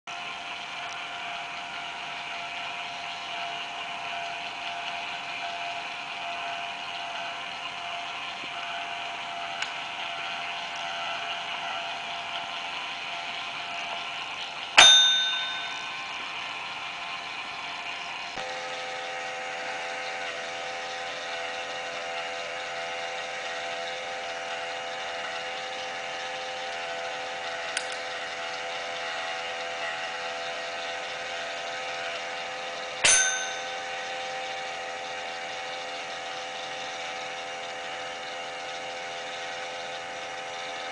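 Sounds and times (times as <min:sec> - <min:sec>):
electric motor turning gears: 0:00.1 - 0:40.9
dome bell clang: 0:14.8 - 0:16.0, 0:33.0 - 0:34.0.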